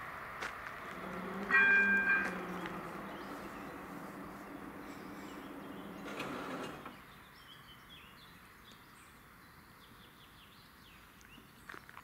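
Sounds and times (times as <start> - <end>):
barrier drive humming: 0.6 - 7.0
birds chirping faintly: 0.7 - 12.0.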